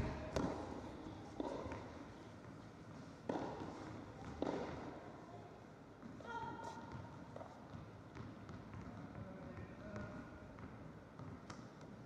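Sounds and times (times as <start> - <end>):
soft thuds in echoing hall: 0.0 - 2.0.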